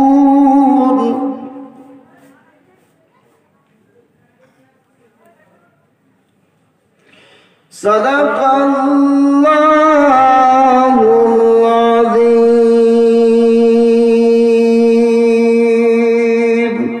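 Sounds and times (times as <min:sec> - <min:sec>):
man chanting into a microphone: 0:00.0 - 0:02.2, 0:07.7 - 0:17.0.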